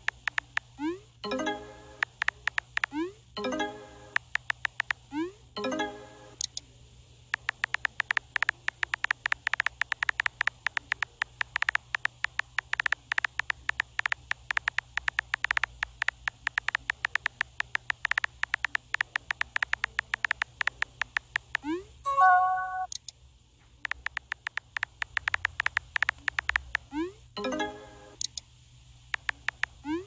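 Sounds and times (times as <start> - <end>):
phone keyboard clicks: 2.0 - 3.0, 4.2 - 5.0, 7.4 - 21.6, 23.8 - 26.9, 29.1 - 29.8.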